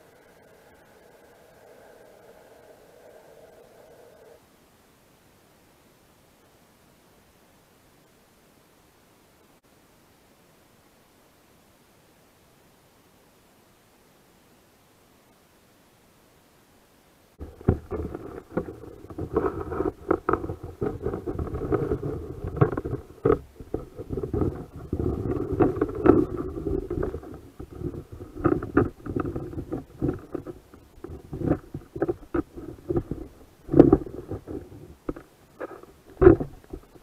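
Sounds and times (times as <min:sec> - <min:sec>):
muffled rumbling: 0:17.4 - 0:37.0.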